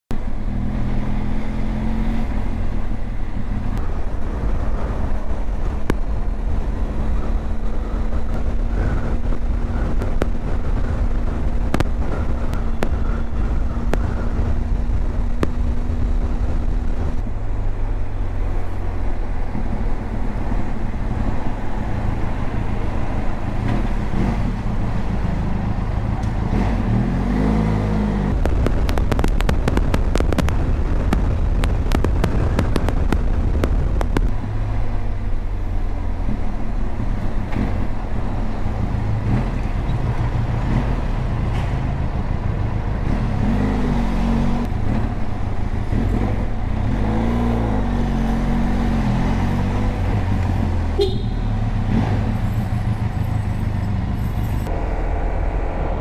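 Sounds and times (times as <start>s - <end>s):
wind rush on microphone: 0.1s - 51.2s
motorcycle engine running: 3.4s - 18.1s, 50.8s - 53.8s.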